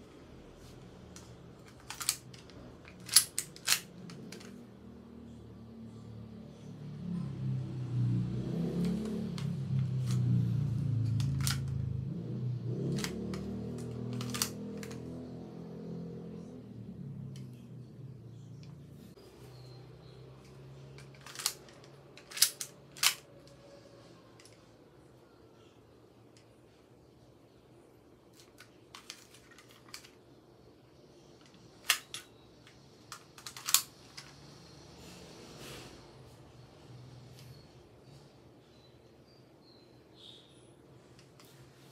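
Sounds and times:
toy pistol clicks and clacks: 1.6s - 4.6s, 11.0s - 11.8s, 12.9s - 15.1s, 21.0s - 23.3s, 31.4s - 32.3s, 33.1s - 34.4s
pistol slide clicks: 2.9s - 4.5s.

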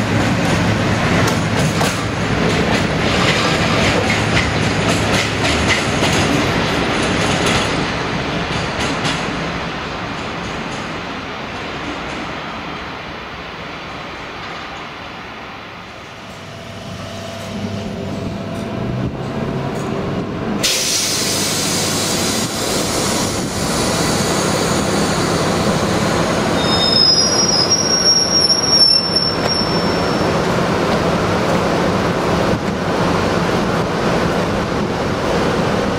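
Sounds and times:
train wheels rumbling: 0.0s - 35.9s
high-pitched wheel squeals: 26.5s - 30.4s.

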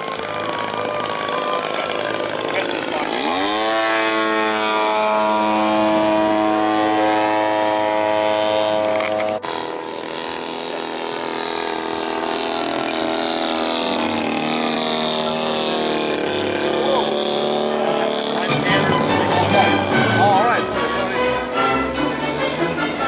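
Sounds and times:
model airplane engine: 0.0s - 23.0s.

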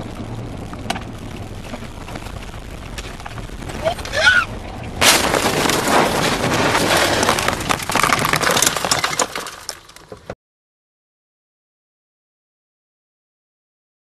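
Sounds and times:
crunching and rattling debris: 0.0s - 10.4s
car crash impact: 5.0s - 10.4s.

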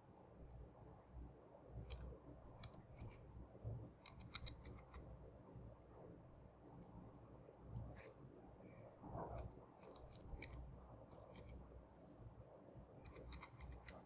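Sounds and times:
low background hum: 0.0s - 14.0s
mouse clicks: 1.8s - 3.2s, 4.0s - 5.0s, 9.4s - 11.6s, 13.0s - 14.0s
keyboard keystrokes: 4.0s - 5.0s, 13.0s - 14.0s.

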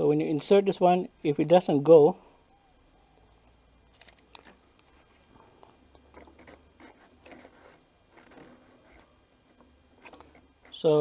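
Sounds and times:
small parts clicking and scraping: 3.9s - 11.0s.

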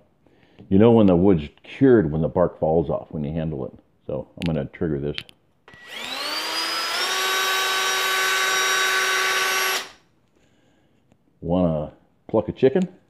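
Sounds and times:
drill motor whine: 5.7s - 10.0s.

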